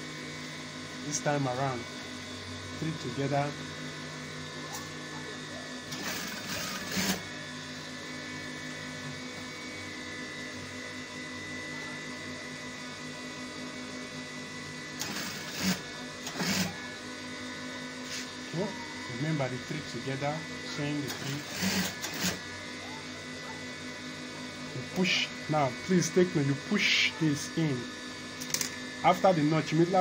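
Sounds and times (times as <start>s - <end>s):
steady motor hum: 0.0s - 30.0s
sewing machine stitching: 5.9s - 7.2s, 15.0s - 16.8s, 21.1s - 22.4s.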